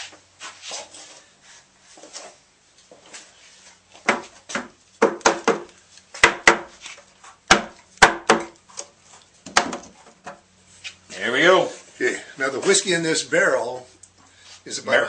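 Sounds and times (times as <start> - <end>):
hammer knocking on wooden barrel: 7.5 - 8.5.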